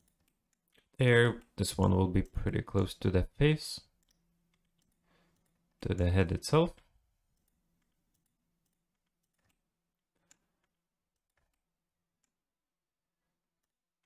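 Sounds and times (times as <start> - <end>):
computer mouse and keyboard clicks: 0.0 - 2.4, 4.0 - 6.0, 6.8 - 12.4.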